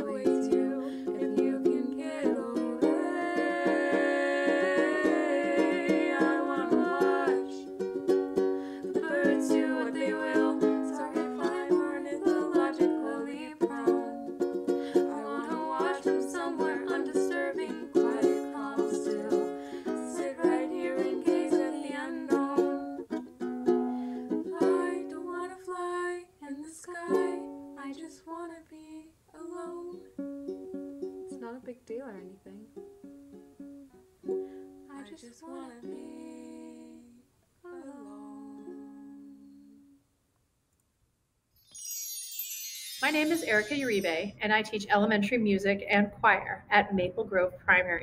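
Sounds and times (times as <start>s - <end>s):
plucked string instrument: 0.0s - 25.5s.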